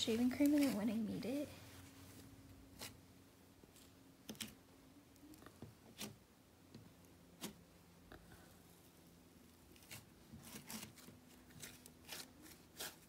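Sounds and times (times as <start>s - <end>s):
faint room hum: 0.0s - 13.0s
slime squishing and crackling: 9.7s - 13.0s.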